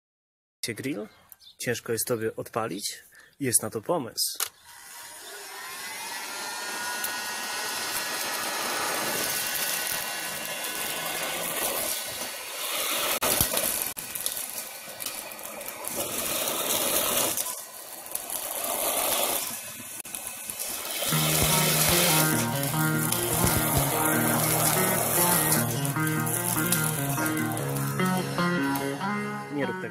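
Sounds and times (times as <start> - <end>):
heat gun blowing air: 4.6 - 28.0.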